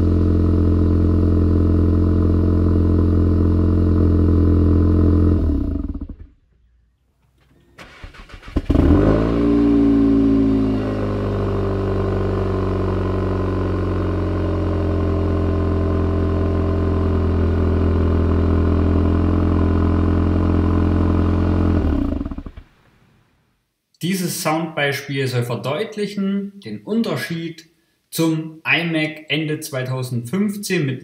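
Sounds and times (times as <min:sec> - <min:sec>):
car engine cold starting: 0:00.0 - 0:06.4, 0:07.4 - 0:23.1.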